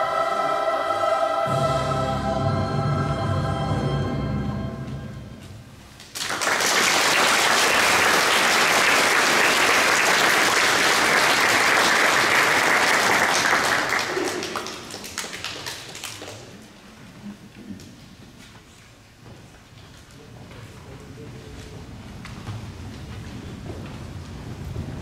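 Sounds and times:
audience applauding: 0:06.0 - 0:16.6.

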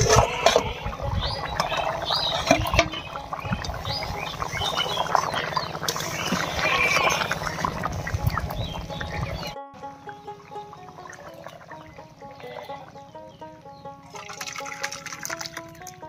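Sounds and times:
metal lid scraping: 0:00.0 - 0:07.6
curry bubbling and popping: 0:00.0 - 0:13.2, 0:14.1 - 0:16.0.

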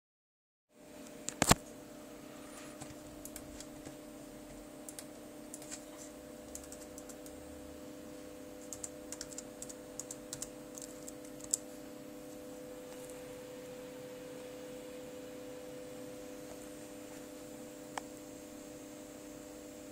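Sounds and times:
steady low hum: 0:00.7 - 0:19.9
laptop keyboard typing: 0:04.9 - 0:05.8, 0:06.4 - 0:07.4, 0:08.6 - 0:11.6.

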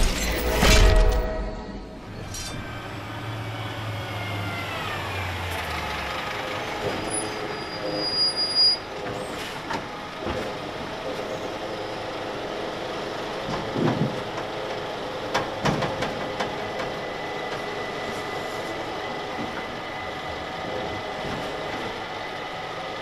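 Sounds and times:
street background: 0:00.0 - 0:23.0
diesel truck passing: 0:02.0 - 0:08.0.

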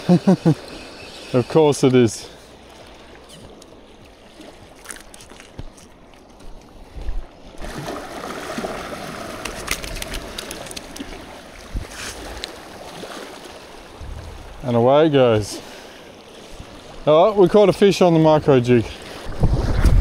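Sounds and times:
small waves lapping on rocks: 0:07.6 - 0:19.5.

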